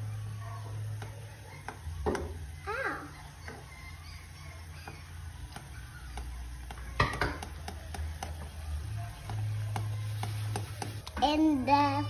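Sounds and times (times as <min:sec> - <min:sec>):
boiling water: 0:04.6 - 0:12.0
spatula tapping a pot: 0:04.8 - 0:11.1.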